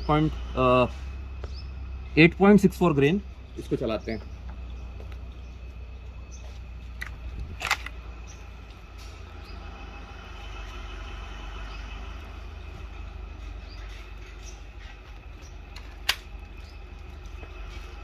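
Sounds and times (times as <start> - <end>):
low background hum: 0.0 - 18.0
air rifle being cocked click: 7.0 - 8.0, 15.8 - 16.3.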